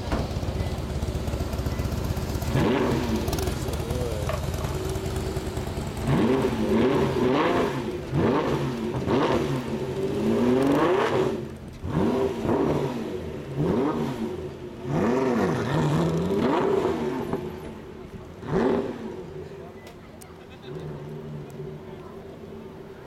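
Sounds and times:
car engine revving: 0.0s - 19.6s, 20.5s - 22.6s.

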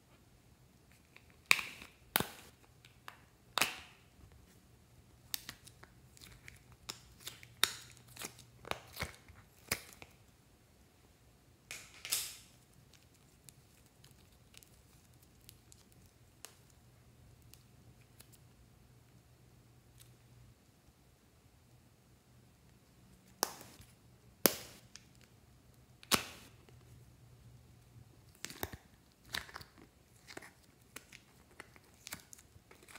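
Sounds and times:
clay peeling with sticky pops: 5.2s - 10.2s, 11.7s - 18.5s, 28.2s - 32.9s.

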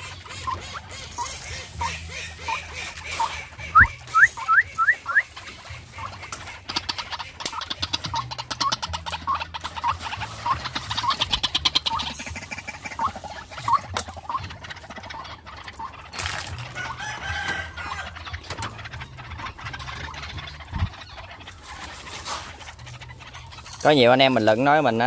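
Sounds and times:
birds clucking calls: 0.0s - 25.0s.

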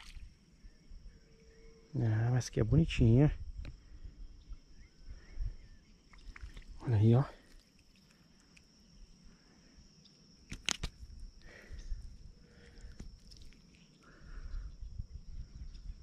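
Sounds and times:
high-pitched insect drone: 0.0s - 10.2s.

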